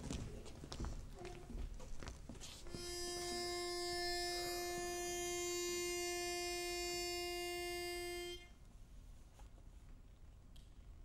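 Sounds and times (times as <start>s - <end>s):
pitch pipe reed note: 2.7s - 8.6s.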